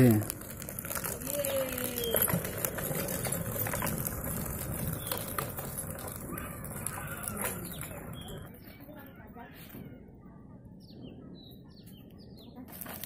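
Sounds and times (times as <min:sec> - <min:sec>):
plastic wheels rattling on concrete: 0:00.0 - 0:08.6.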